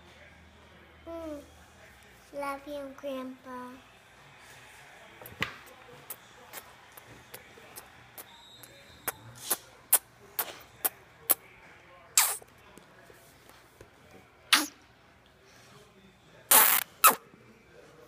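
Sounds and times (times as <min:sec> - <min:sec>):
child's kisses smacking: 0:12.2 - 0:12.4.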